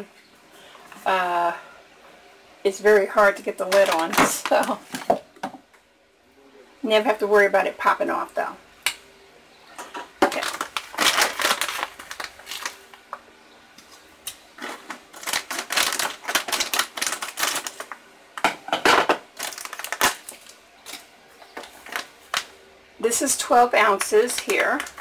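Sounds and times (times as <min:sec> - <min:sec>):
plastic bag crinkling: 0:03.3 - 0:05.2, 0:10.1 - 0:13.2, 0:14.6 - 0:18.1, 0:19.3 - 0:22.6, 0:23.8 - 0:25.0.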